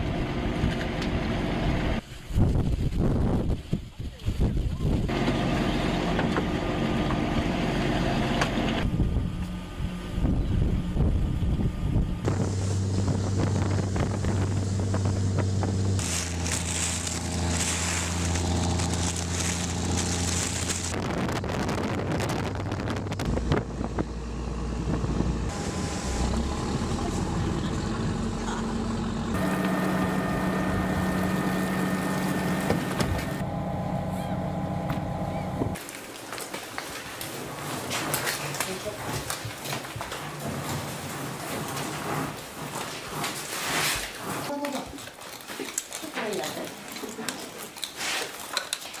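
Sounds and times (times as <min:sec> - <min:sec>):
wind on microphone: 0:02.2 - 0:05.1, 0:08.8 - 0:16.1, 0:19.7 - 0:24.2
boat motors humming: 0:05.1 - 0:35.8.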